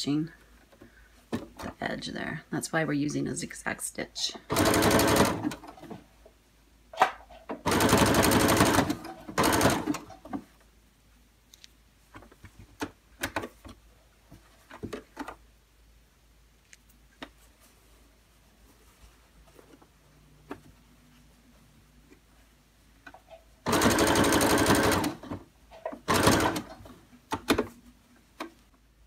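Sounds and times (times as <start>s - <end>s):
sewing machine stitching: 4.5s - 5.8s, 7.7s - 10.2s, 23.6s - 26.9s.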